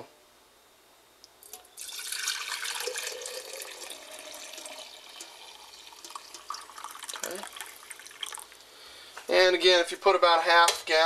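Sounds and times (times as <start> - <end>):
liquid pouring into glass jar: 1.4 - 8.6.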